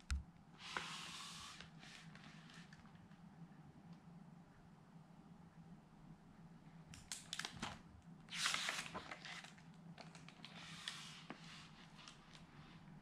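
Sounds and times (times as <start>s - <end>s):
soft paper rustling: 0.6s - 3.2s, 7.2s - 13.0s
paper page turning: 7.4s - 12.5s.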